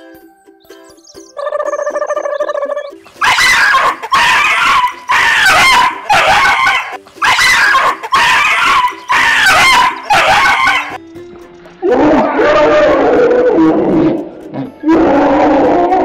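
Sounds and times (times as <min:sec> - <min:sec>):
dog barking loudly: 0:03.2 - 0:11.0.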